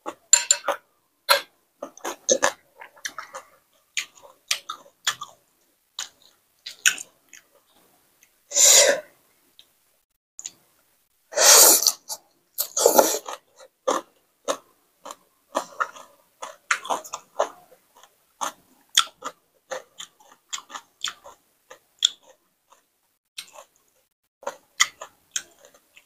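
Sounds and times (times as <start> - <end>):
person chewing with mouth clicks: 12.6 - 26.0.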